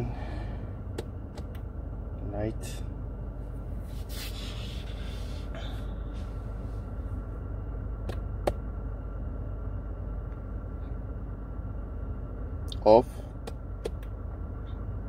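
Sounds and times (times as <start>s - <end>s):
low hum in truck cab: 0.0s - 15.0s
brief rubbing noise: 3.9s - 4.8s.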